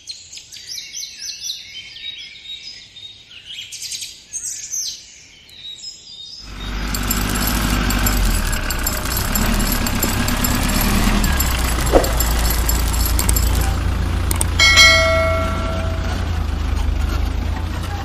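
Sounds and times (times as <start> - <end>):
bright bell ding: 6.5 - 16.6.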